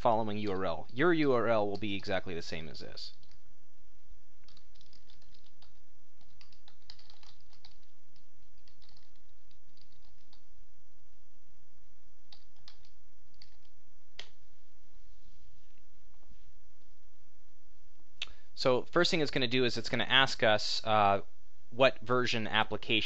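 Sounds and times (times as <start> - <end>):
computer keyboard typing: 3.1 - 3.4, 4.4 - 10.5, 12.3 - 14.4.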